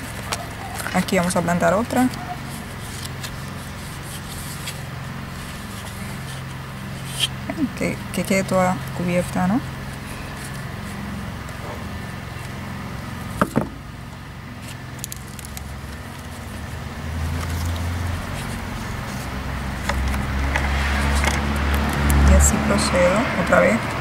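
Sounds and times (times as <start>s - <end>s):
faint crackling and scraping: 0.0s - 12.6s.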